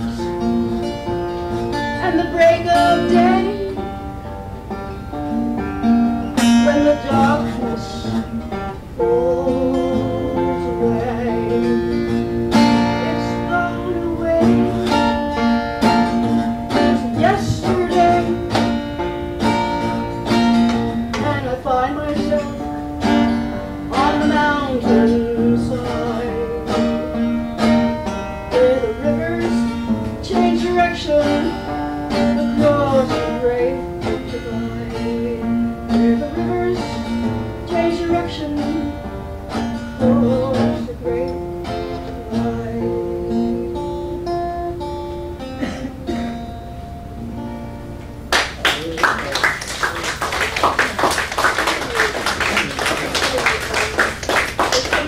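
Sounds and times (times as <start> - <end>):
acoustic guitar playing folk song: 0.0 - 55.0
audience applause: 48.3 - 55.0.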